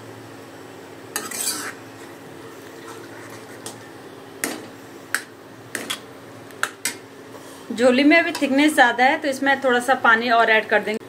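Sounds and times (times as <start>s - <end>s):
spoon scraping a pan: 1.2s - 2.2s, 2.8s - 3.9s.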